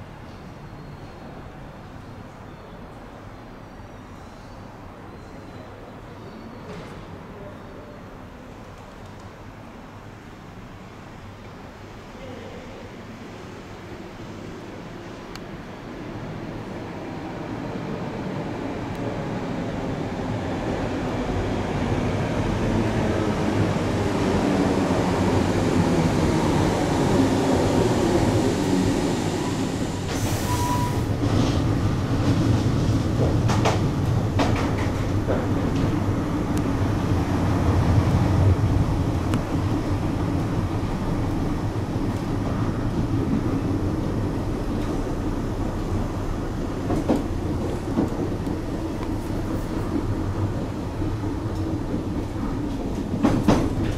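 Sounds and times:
train wheels and motors rumbling: 17.9 - 53.9.

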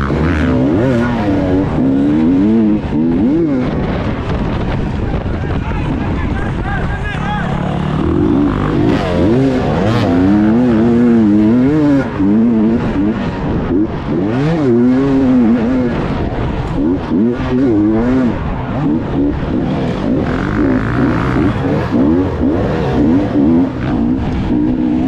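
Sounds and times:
motorcycle engines revving: 0.0 - 25.0.

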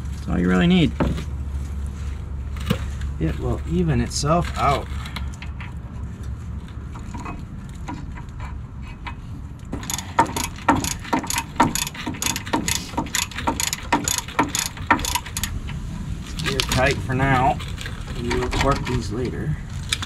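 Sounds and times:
hand ratchet clicking: 9.7 - 15.8.

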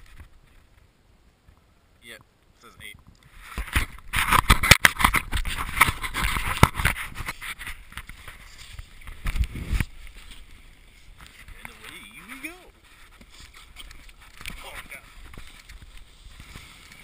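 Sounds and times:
sled scraping on snow: 3.4 - 17.0.

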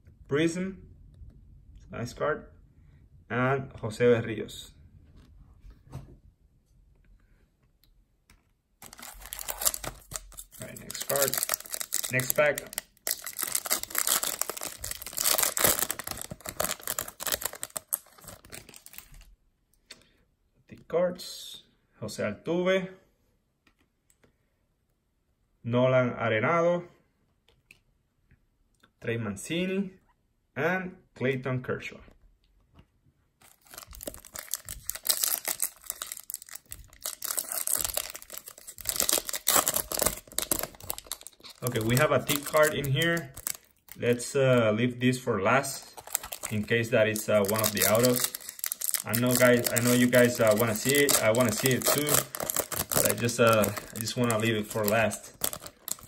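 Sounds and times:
foil wrapper crinkling and tearing: 8.8 - 19.3, 33.4 - 44.2, 45.8 - 56.0.

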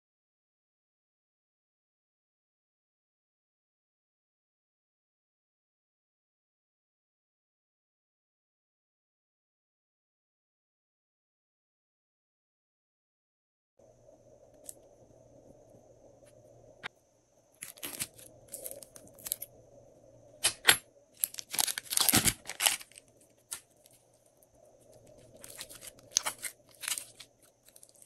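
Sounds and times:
plastic bag crinkling: 17.6 - 19.5, 21.2 - 24.0, 25.0 - 28.0
slime squishing: 20.5 - 24.0, 25.0 - 28.0.

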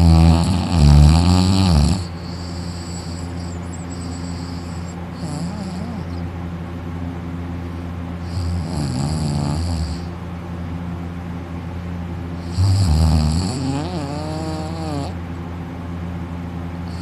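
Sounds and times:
person snoring: 0.0 - 6.2, 8.2 - 10.1, 12.4 - 15.2
steady low hum: 0.0 - 17.0.

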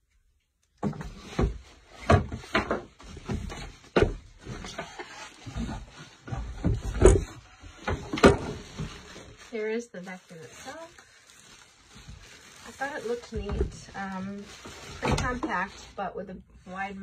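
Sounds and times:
plastic wrapping crinkling: 7.1 - 16.1.

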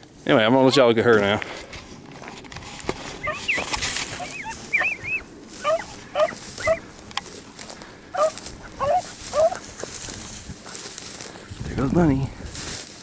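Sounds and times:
dog yelping: 3.2 - 6.8, 8.2 - 9.6.

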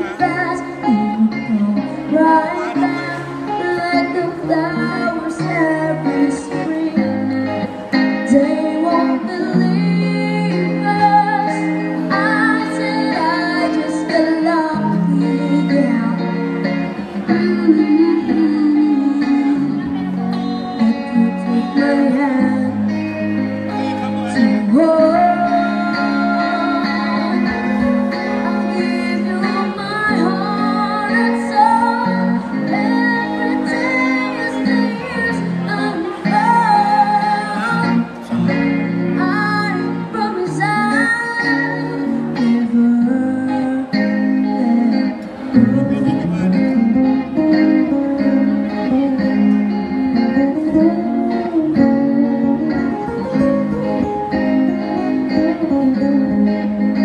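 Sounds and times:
child singing into a microphone: 0.0 - 46.6
electric guitar lead lines: 0.0 - 57.0
electric guitar strumming chords: 0.0 - 57.0.

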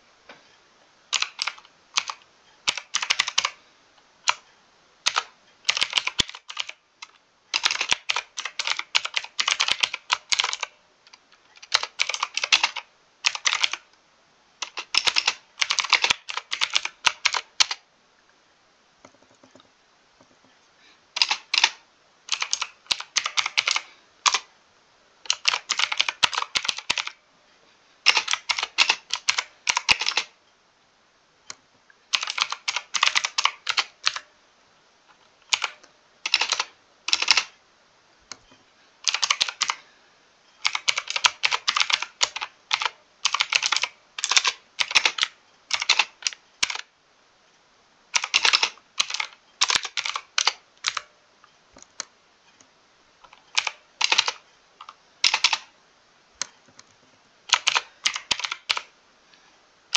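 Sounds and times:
mechanical keyboard typing: 1.1 - 3.6, 4.2 - 4.4, 5.0 - 13.9, 14.6 - 17.8, 21.2 - 24.5, 25.2 - 27.2, 28.0 - 30.4, 32.1 - 34.3, 35.4 - 37.6, 39.0 - 39.8, 40.6 - 46.9, 48.2 - 51.1, 53.3 - 55.7, 57.5 - 58.9.

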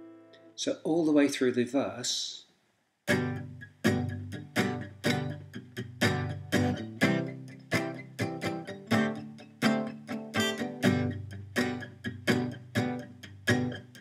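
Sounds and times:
acoustic guitar strumming chords: 3.1 - 14.0.

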